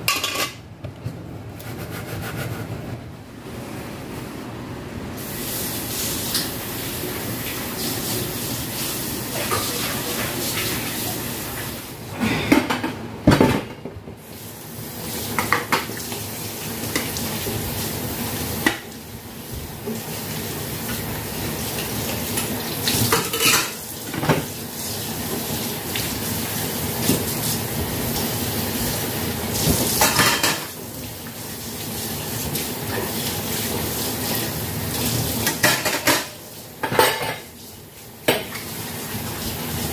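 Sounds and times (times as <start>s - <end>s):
dishes clattering: 0.0s - 0.6s, 23.1s - 24.5s, 30.0s - 30.8s, 35.4s - 37.5s
dishes clinking in a sink: 0.0s - 0.6s, 9.3s - 10.8s, 22.3s - 24.5s, 29.7s - 30.8s, 35.4s - 37.6s, 38.2s - 38.7s
tap water running: 5.2s - 12.0s, 14.2s - 39.9s.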